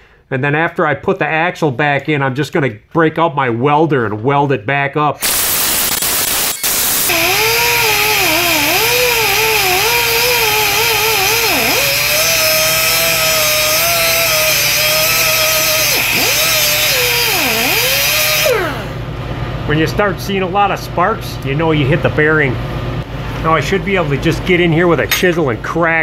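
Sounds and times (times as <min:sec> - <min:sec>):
pneumatic cut-off tool whine: 0:05.2 - 0:19.0.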